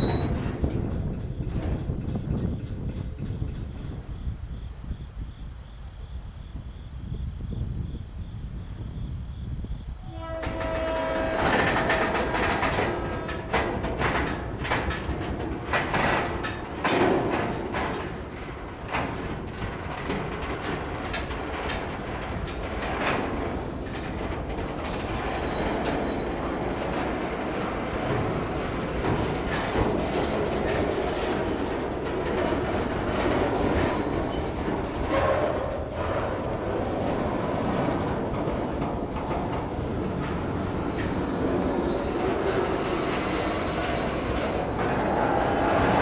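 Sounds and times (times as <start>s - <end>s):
wheels squealing on rail: 0.0s - 2.6s, 10.0s - 46.0s
freight train wheels rumbling: 0.0s - 46.0s
metallic clanks and bangs: 10.5s - 46.0s.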